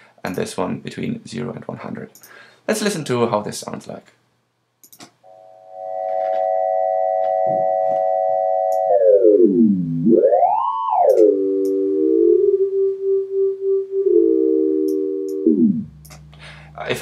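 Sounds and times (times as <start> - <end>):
amplitude-modulated sine tone: 5.3 - 17.0.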